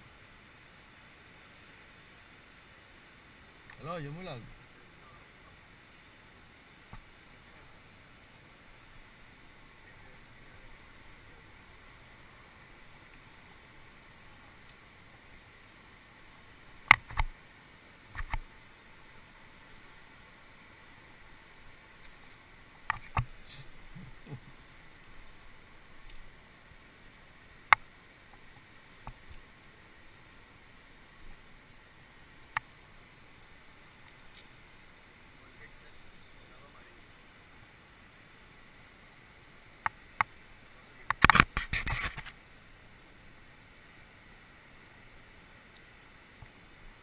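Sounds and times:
faint hiss: 0.0 - 47.0.

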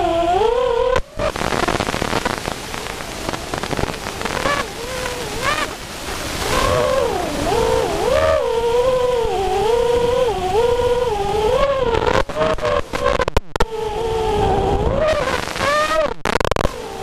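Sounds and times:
rushing wind noise: 0.0 - 17.0
drone motors whining: 3.6 - 16.0.

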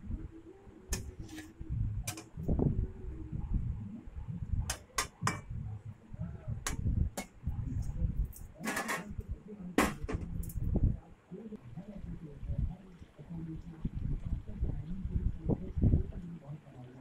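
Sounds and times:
low steady rumble: 0.0 - 8.5.

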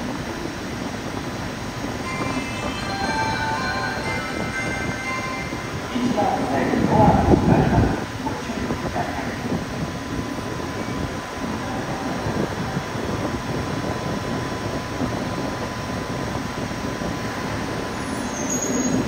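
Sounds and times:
train air-conditioning whirring: 0.0 - 19.0
faint high tone: 2.0 - 6.2.

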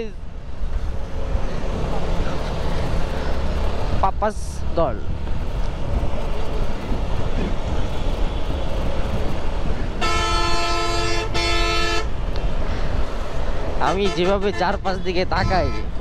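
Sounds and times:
wind and motorcycle road rumble: 0.0 - 16.0
vehicle horn: 10.0 - 12.1, 13.9 - 16.0.

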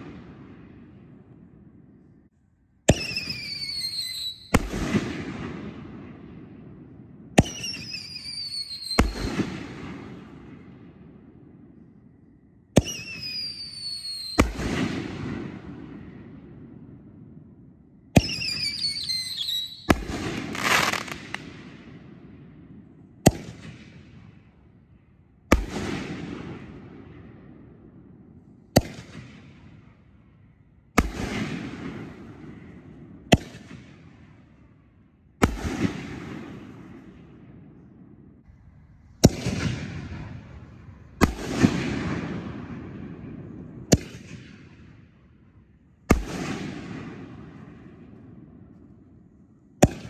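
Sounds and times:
firework burst with hiss: 20.2 - 21.4
firework shells booming: 38.9 - 45.0.

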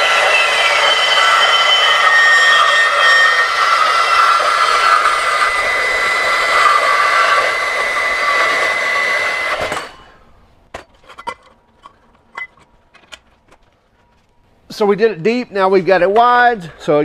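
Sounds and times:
band saw cutting steel: 0.0 - 10.4
handling knocks and clicks: 10.7 - 14.5.

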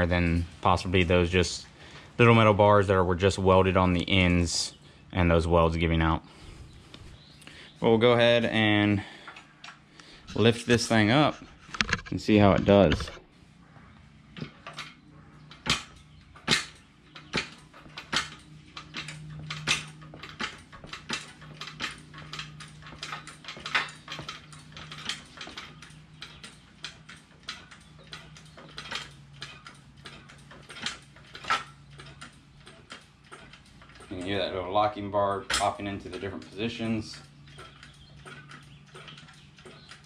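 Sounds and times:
metallic clicks and clanks: 8.3 - 13.3, 14.3 - 40.0.

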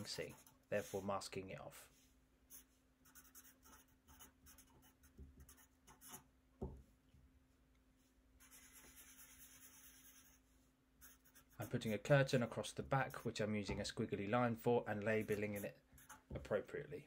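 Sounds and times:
marker writing on paper: 0.0 - 1.0, 2.5 - 6.2, 8.4 - 10.4, 11.0 - 12.2, 15.0 - 16.5.

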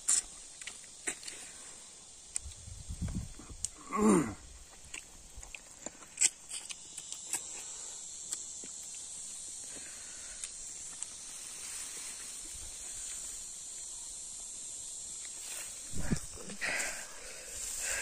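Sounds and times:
insects droning: 0.0 - 18.0
eating by hand clicks: 0.1 - 1.4, 4.8 - 9.1.

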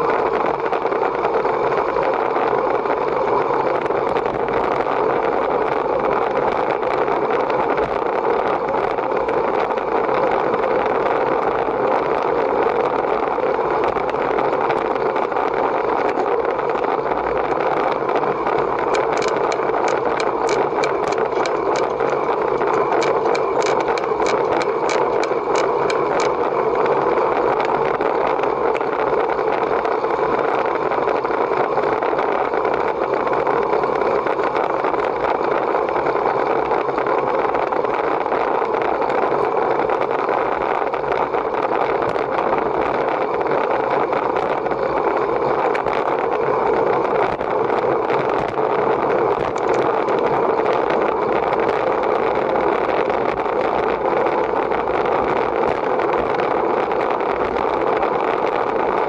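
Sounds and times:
vehicle running hum: 0.0 - 59.0
sharp ticks: 10.7 - 33.2.

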